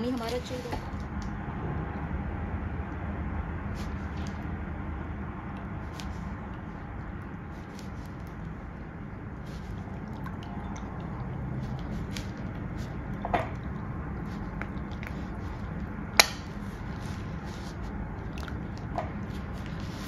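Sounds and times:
wet squishing and dripping: 9.4s - 20.0s.

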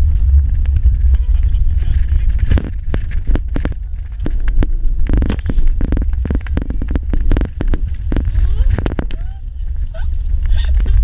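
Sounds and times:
vehicle rumble on dirt track: 0.0s - 11.0s
knocks and rattles: 0.6s - 9.4s.

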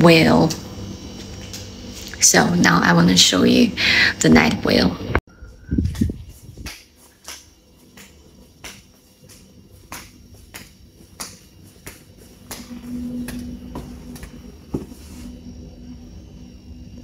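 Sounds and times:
steady low hum: 0.0s - 17.0s
footsteps clicking: 5.9s - 14.9s.

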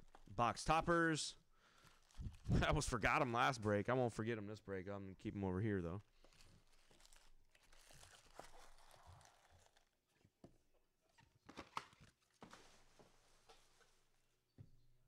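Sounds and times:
packaging rustling and crinkling: 0.0s - 0.4s, 1.7s - 2.9s, 6.0s - 10.0s.

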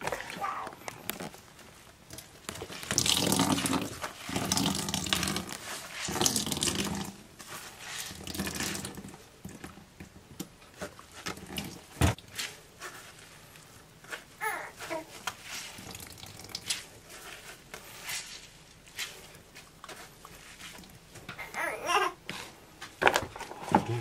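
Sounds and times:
potato squeezed in metal sieve: 2.6s - 9.2s, 14.8s - 21.0s
water dripping into bowl: 15.8s - 16.6s.

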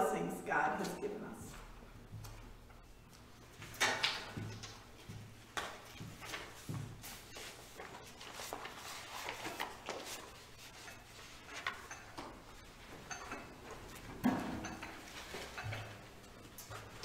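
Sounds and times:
footsteps: 0.8s - 11.5s
dishes clinking on a tray: 11.0s - 16.9s.

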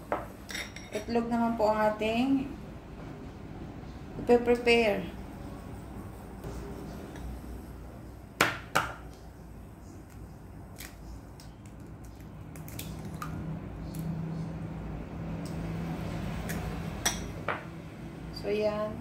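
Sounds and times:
eggshell cracking open: 10.8s - 14.0s.

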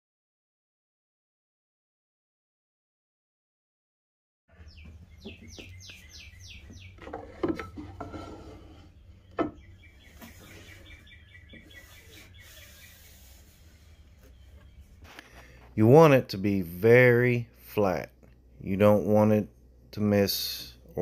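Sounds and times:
bird chirping: 4.5s - 7.5s, 8.9s - 15.6s
wooden board knocking on metal table: 9.3s - 9.6s.

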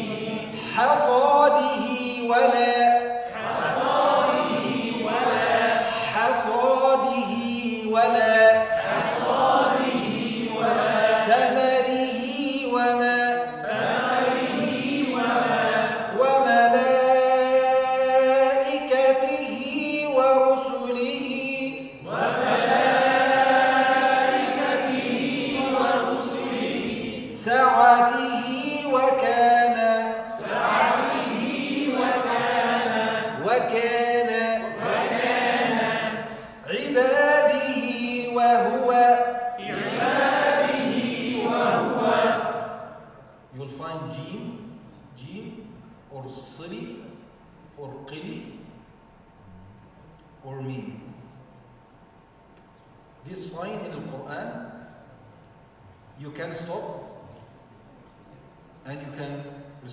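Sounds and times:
man chanting: 0.6s - 3.4s, 5.8s - 8.8s, 11.1s - 13.7s, 16.0s - 22.1s, 27.3s - 30.8s, 33.2s - 34.9s, 36.6s - 39.7s.

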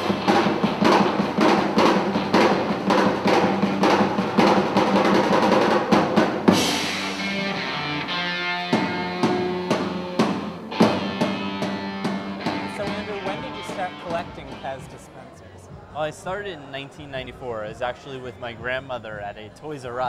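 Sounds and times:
cymbal crash: 0.0s - 14.2s
drum kit fast beat: 0.0s - 15.9s.

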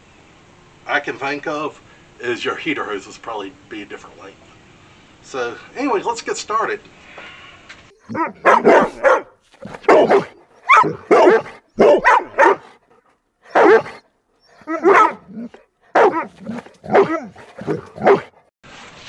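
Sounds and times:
dog barking loudly: 8.0s - 12.9s, 13.5s - 18.5s.

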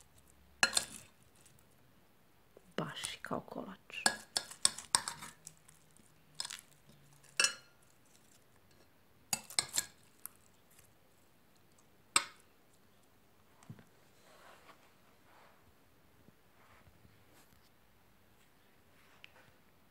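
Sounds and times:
knife clinking and scraping on glass: 0.6s - 1.1s, 7.2s - 7.9s, 9.4s - 10.0s.

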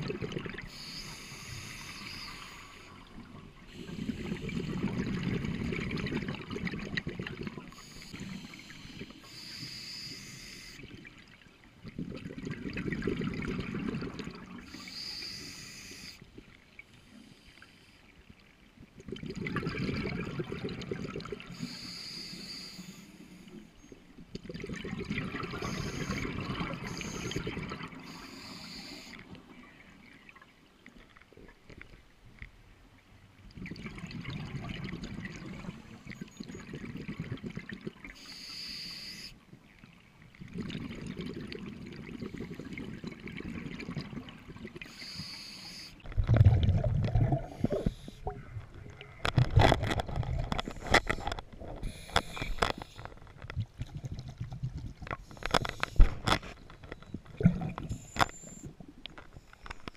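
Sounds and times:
exhaled bubbles underwater: 0.0s - 9.8s, 10.8s - 15.4s, 18.9s - 22.0s, 24.3s - 30.4s, 33.4s - 38.4s, 39.8s - 59.2s
regulator hiss: 0.7s - 2.9s, 7.8s - 10.8s, 14.7s - 16.2s, 21.6s - 23.4s, 28.0s - 29.2s, 38.2s - 39.4s, 44.9s - 46.0s.

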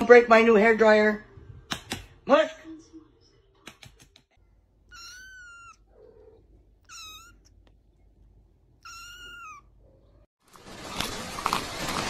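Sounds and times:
kitten meowing: 4.9s - 7.7s, 8.8s - 9.8s.

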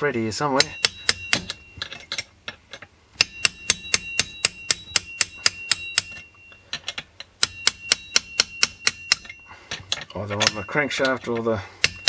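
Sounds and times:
hammer striking steel punch: 0.6s - 1.7s, 3.2s - 6.4s, 7.4s - 9.4s, 11.8s - 12.0s.

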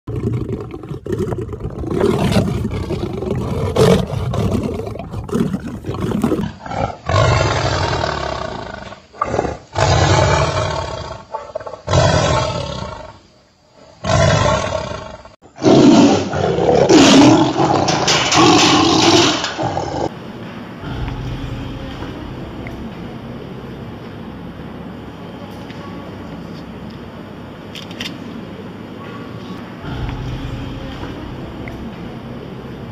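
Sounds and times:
big cats growling: 0.1s - 13.2s, 14.0s - 20.1s
tigers roaring: 0.1s - 13.2s, 14.0s - 20.1s.

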